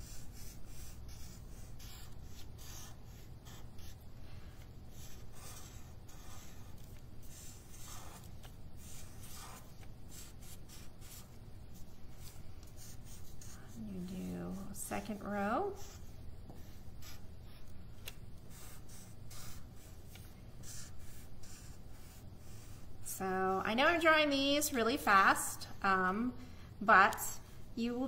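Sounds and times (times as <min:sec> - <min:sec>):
felt-tip marker on paper: 0:00.0 - 0:17.2, 0:18.5 - 0:19.9, 0:20.6 - 0:22.9.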